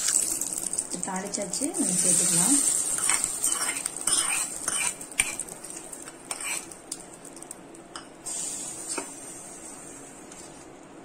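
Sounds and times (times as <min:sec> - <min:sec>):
metal spoon clinking against pan: 0:03.0 - 0:05.4.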